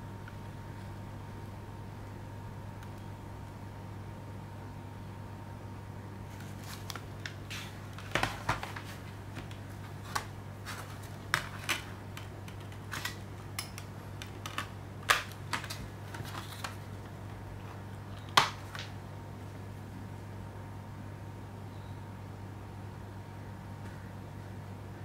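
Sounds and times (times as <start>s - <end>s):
steady low hum: 0.0s - 25.0s
plastic disc trays clicking: 8.0s - 16.8s
plastic snap: 11.3s - 15.8s.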